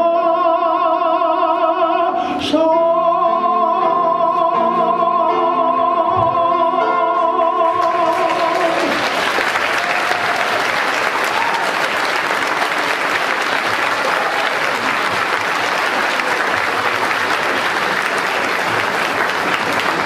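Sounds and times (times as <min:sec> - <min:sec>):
audience applauding: 0:07.8 - 0:20.0.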